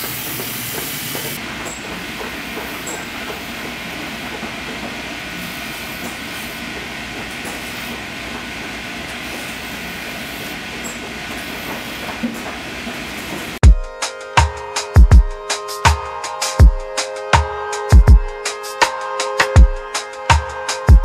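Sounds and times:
machine rushing hiss: 0.0s - 13.6s.

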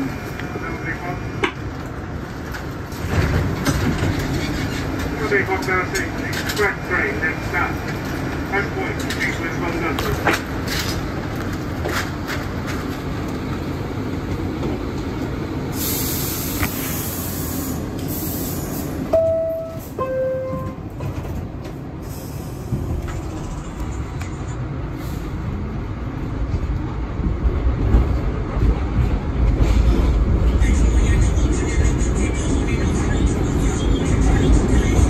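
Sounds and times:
train low rumble: 0.0s - 35.0s
air brake hiss: 15.7s - 19.0s, 22.0s - 22.7s.

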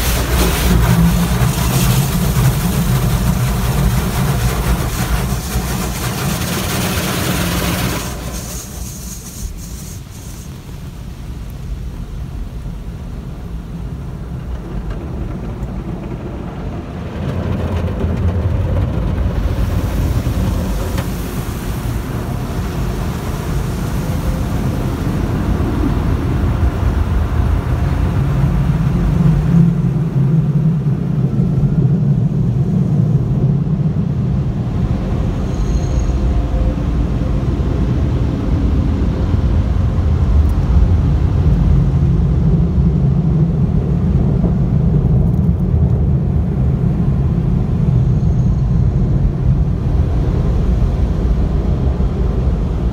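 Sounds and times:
hiss of spray: 0.0s - 11.1s, 19.5s - 25.2s
car wash water and machinery: 0.0s - 52.9s.

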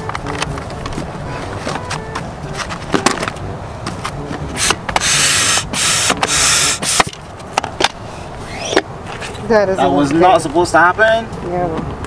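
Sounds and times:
handling knocks and clicks: 0.0s - 5.1s
hand pump air whooshes: 4.5s - 7.2s, 8.2s - 9.3s.

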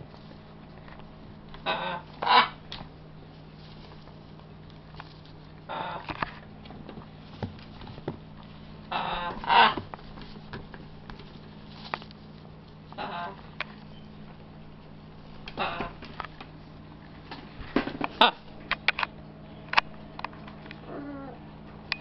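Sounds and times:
macaws squawking: 1.6s - 2.6s, 5.7s - 6.2s, 8.9s - 9.8s, 13.0s - 13.4s, 15.4s - 16.1s.

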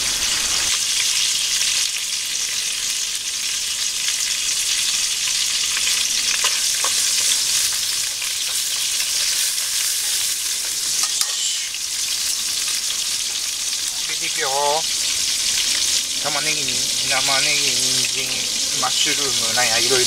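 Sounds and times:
garlic sizzling in hot oil: 0.0s - 20.0s
chopsticks stirring in pan: 6.4s - 11.7s.

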